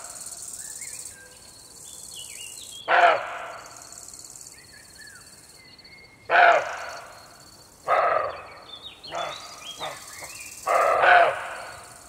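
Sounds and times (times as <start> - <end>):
insect trilling: 0.0 - 2.8, 3.5 - 5.6, 9.1 - 12.0
birds chirping: 0.0 - 12.0.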